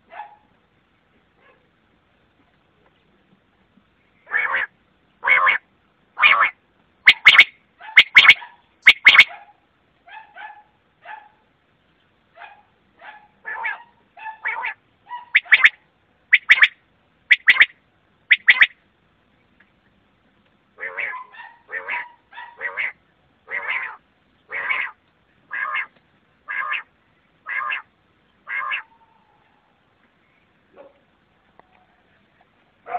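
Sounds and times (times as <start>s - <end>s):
quail calling: 4.2s - 5.6s, 6.2s - 9.4s, 13.1s - 18.8s, 20.8s - 29.6s.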